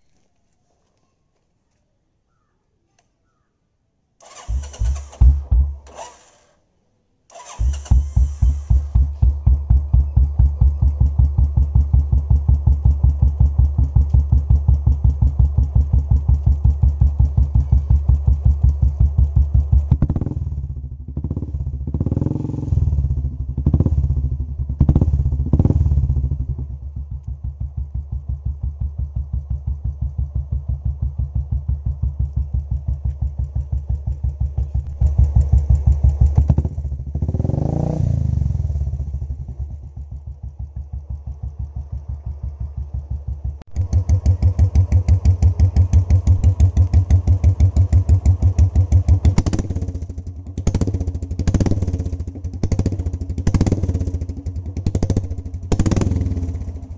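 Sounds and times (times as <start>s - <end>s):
motorcycle engine thumping: 4.2s - 6.0s, 7.4s - 56.9s
engine revving: 4.2s - 6.5s, 7.3s - 12.0s, 19.5s - 26.4s, 34.8s - 39.6s, 43.6s - 56.9s.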